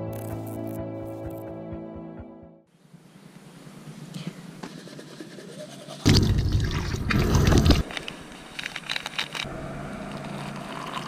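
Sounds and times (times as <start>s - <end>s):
faint background noise: 2.7s - 11.0s.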